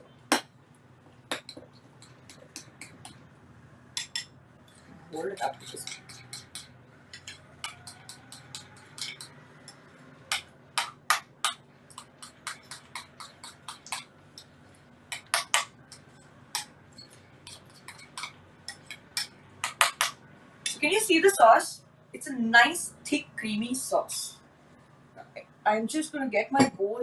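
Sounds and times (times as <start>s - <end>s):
spoon clinking against glass bowl: 5.4s - 10.5s.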